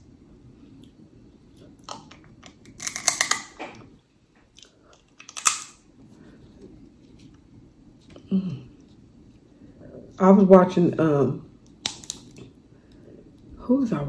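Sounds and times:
crab shells cracking: 1.9 - 3.6, 5.1 - 5.8, 11.7 - 12.5.

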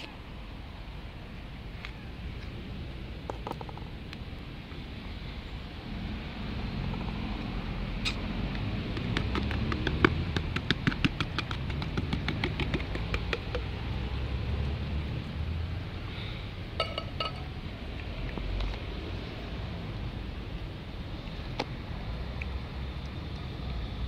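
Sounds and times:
low steady rumble: 0.1 - 24.0
metal can clinking and tapping: 16.8 - 17.5.

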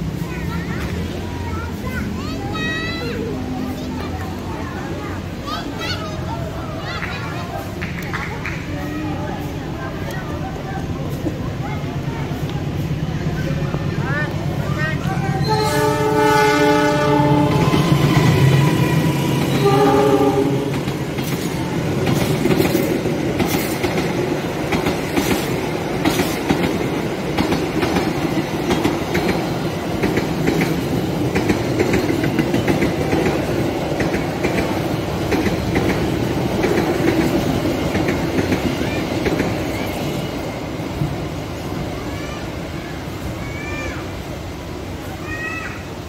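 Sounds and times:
train wheels rumbling on rails: 0.0 - 46.0
train horn: 15.4 - 17.8, 19.5 - 20.8
wheels clicking over rail joints: 17.1 - 44.1.

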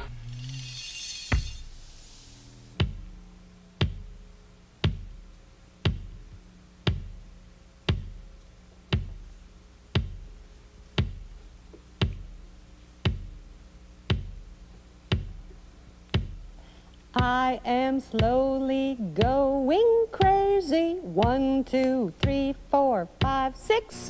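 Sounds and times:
sharp drum hits: 0.0 - 3.2
low sustained tone: 0.0 - 11.6.

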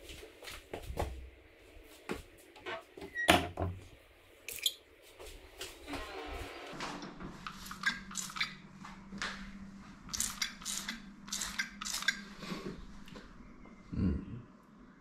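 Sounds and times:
spray bottle hissing sprays: 10.1 - 12.5.

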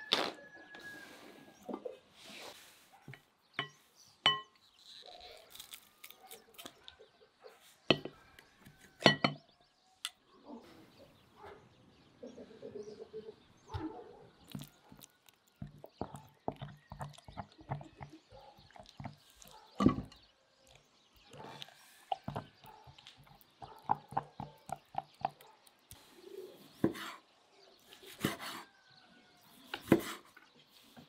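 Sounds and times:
wooden spoon stirring in glass bowl: 14.4 - 20.2, 21.2 - 25.4.

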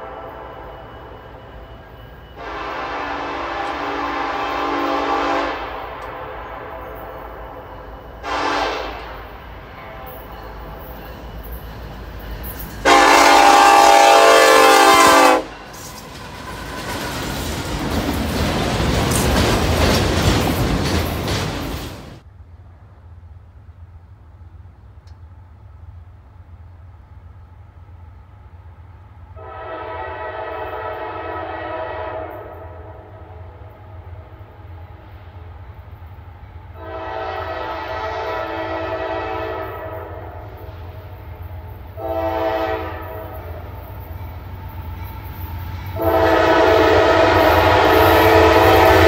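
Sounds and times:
locomotive air horn: 0.0 - 0.9, 2.4 - 10.8, 12.8 - 15.9, 29.4 - 33.6, 36.8 - 40.6, 41.9 - 43.6, 45.9 - 49.0
passing train rumble: 0.0 - 49.0.

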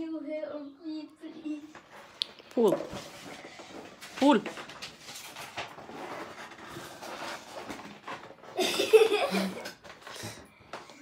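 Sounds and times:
cardboard box rustling and scraping: 2.7 - 8.6.

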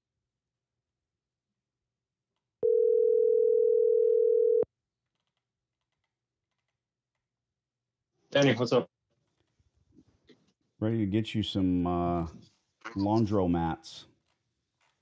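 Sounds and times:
telephone ringback tone: 2.6 - 4.7.

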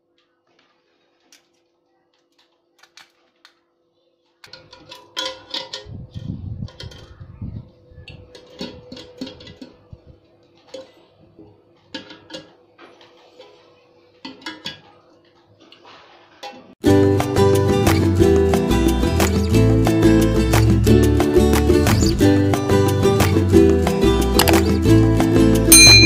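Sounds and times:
metal clinks and knocks: 25.7 - 26.0.

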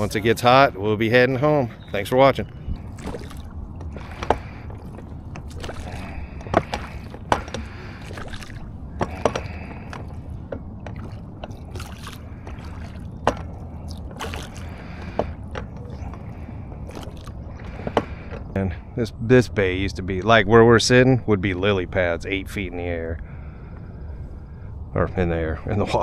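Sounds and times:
boat low rumble: 0.0 - 26.0
sharp knocks and clicks: 13.2 - 13.6.

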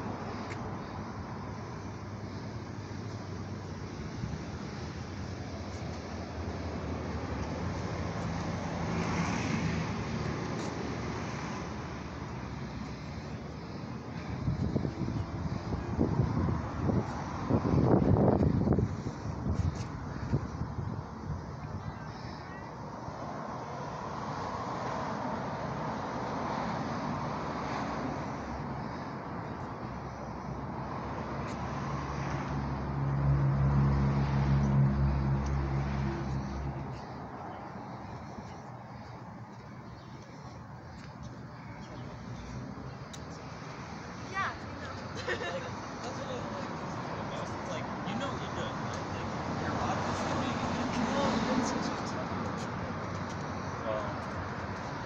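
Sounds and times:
traffic hiss: 0.0 - 55.0
vehicle passing: 30.4 - 40.6, 42.1 - 55.0
vehicle engine passing by: 31.8 - 36.9, 46.8 - 52.5.

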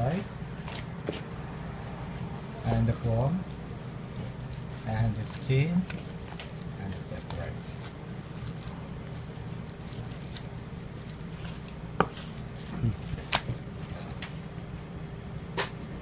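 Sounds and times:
steady low hum: 0.0 - 16.0
soft handling sounds: 2.1 - 14.4.

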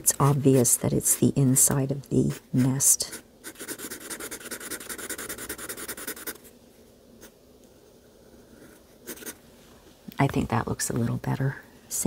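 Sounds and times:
marker scribbling on paper: 2.3 - 6.4, 8.6 - 9.4.

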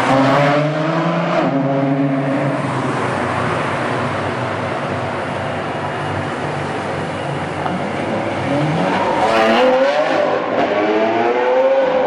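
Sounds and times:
road and traffic noise: 0.0 - 12.0
car engine revving loudly: 8.4 - 12.0.

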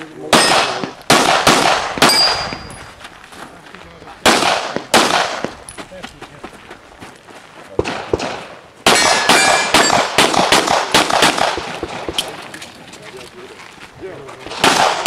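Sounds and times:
pistol shots with echo: 0.2 - 2.7, 4.2 - 5.6, 7.8 - 12.3, 14.5 - 15.0
metallic ring of steel target: 2.0 - 2.8, 8.9 - 10.1.

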